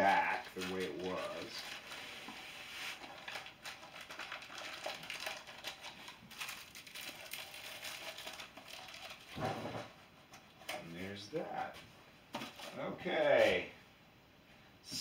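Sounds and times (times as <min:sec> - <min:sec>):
packaging rustling and crinkling: 0:00.0 - 0:10.0, 0:12.4 - 0:12.8.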